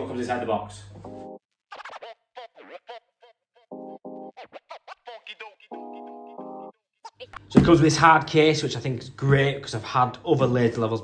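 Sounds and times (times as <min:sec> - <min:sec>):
pitch-sweeping scratch sounds: 0:01.7 - 0:03.0.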